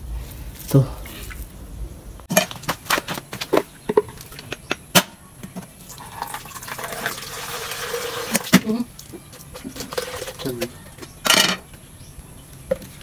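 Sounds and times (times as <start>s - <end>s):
water pouring into a pitcher: 5.9s - 8.5s, 9.5s - 10.6s.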